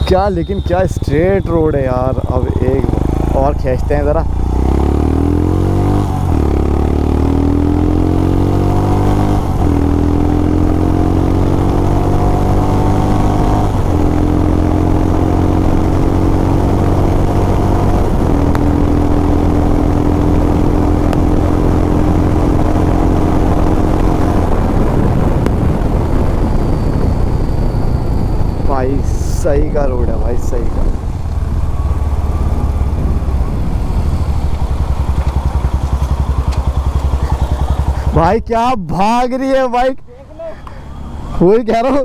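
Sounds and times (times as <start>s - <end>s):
motorcycle accelerating through gears: 0.0s - 38.3s
wind noise: 15.6s - 38.4s.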